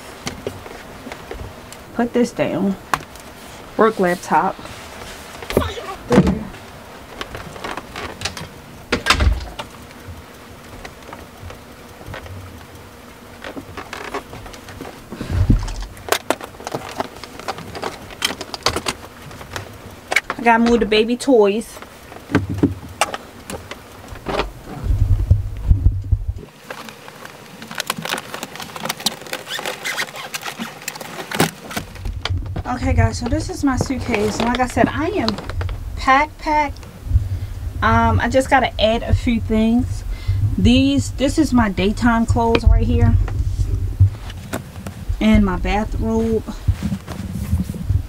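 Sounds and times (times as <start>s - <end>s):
background hiss: 0.0s - 48.0s
objects being handled: 26.4s - 35.8s, 46.2s - 48.0s
scratchy rustles: 26.4s - 36.2s, 39.8s - 48.0s.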